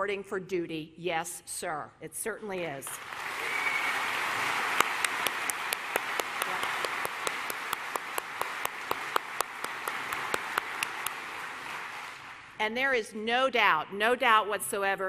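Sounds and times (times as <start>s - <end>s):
audience applauding: 3.0s - 12.6s
sharp nearby claps: 4.4s - 12.4s.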